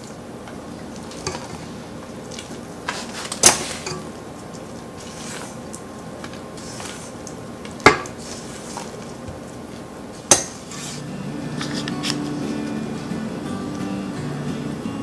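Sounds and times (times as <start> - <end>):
spatula scraping batter in metal bowl: 6.6 - 7.2, 8.0 - 9.1, 10.5 - 12.2
music: 11.0 - 15.0.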